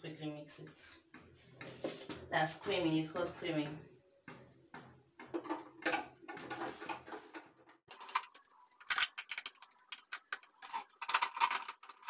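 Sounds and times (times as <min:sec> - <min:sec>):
mixer beaters clicking and rattling: 0:04.3 - 0:12.0.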